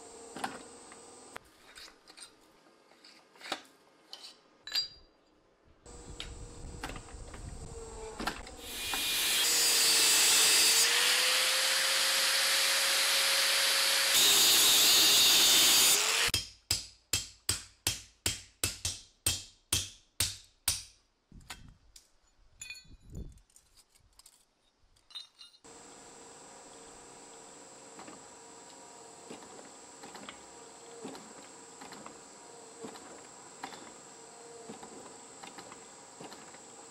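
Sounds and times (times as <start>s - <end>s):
hydraulic press hissing: 8.6s - 10.8s
hammer striking chisel on anvil: 16.3s - 21.0s
metal taps and clinks: 22.6s - 23.1s, 25.0s - 25.6s.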